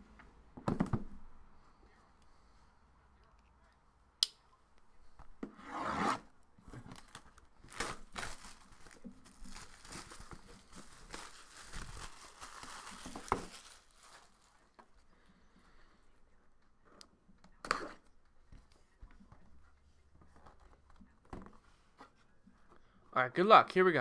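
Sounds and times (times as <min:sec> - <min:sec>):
plastic shrink-wrap crinkling: 0:06.8 - 0:14.8.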